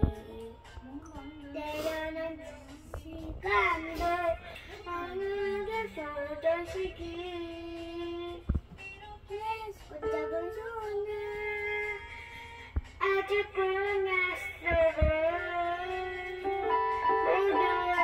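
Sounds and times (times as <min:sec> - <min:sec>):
digital piano playing: 0:00.0 - 0:00.7, 0:10.0 - 0:11.3, 0:16.3 - 0:18.0
girl singing long notes: 0:13.0 - 0:18.0.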